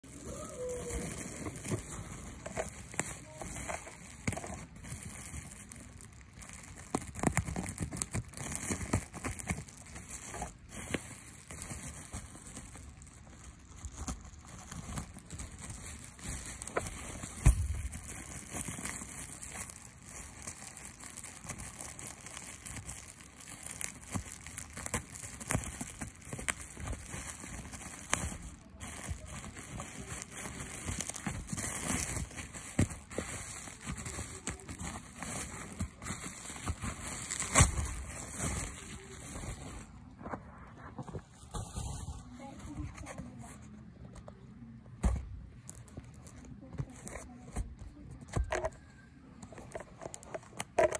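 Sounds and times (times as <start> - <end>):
plastic packaging crinkling: 0.0 - 43.3, 45.2 - 50.9.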